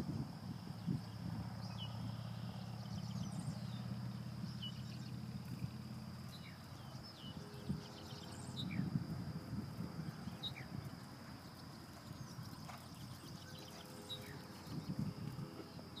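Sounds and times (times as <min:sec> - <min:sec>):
hoofbeats on sand: 0:10.7 - 0:16.0.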